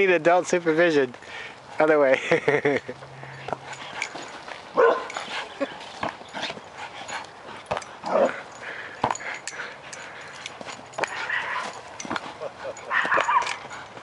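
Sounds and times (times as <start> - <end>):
dogs vocalising in play: 3.2 - 14.0.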